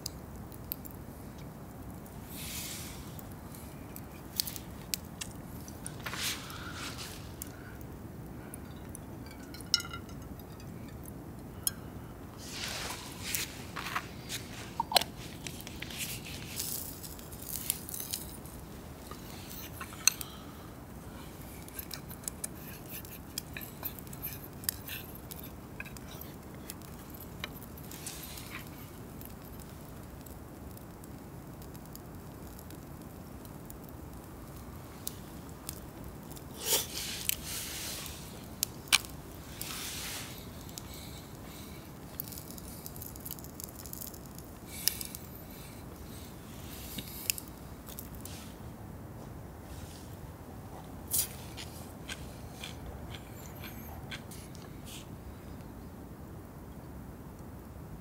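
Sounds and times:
low background noise: 0:00.0 - 0:58.0
utensils clicking and scraping: 0:12.4 - 0:20.5, 0:21.2 - 0:29.5.

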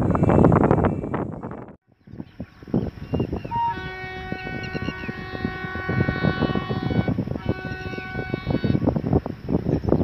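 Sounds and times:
wind buffeting microphone: 0:00.0 - 0:10.0
locomotive horn blast: 0:03.5 - 0:08.9.

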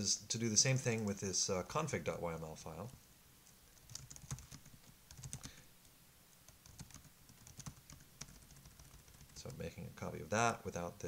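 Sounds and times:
computer keyboard typing: 0:03.8 - 0:05.6, 0:06.5 - 0:09.6.

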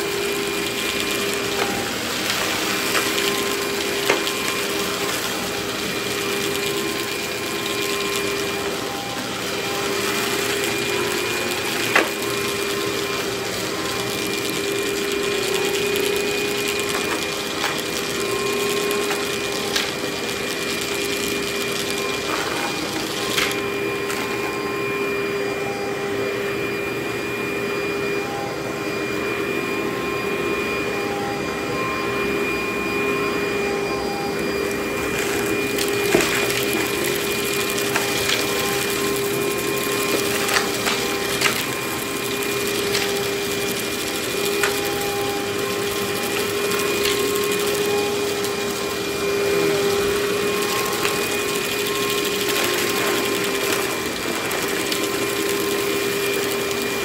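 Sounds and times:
debris clicking in vacuum: 0:00.0 - 0:24.6, 0:34.7 - 0:57.0
vacuum cleaner running: 0:00.0 - 0:57.0.

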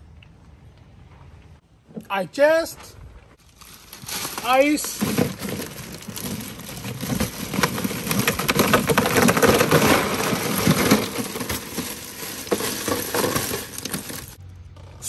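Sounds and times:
ice cubes clattering into cooler: 0:03.6 - 0:14.4.

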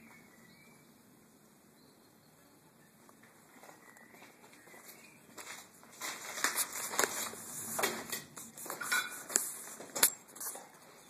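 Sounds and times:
footsteps crunching over rubble: 0:03.2 - 0:10.0.

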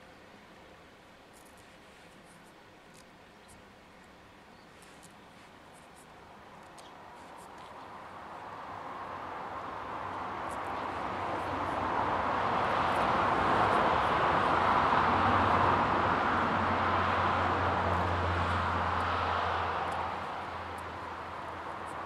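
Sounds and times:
passing vehicle rushing: 0:09.0 - 0:22.0.

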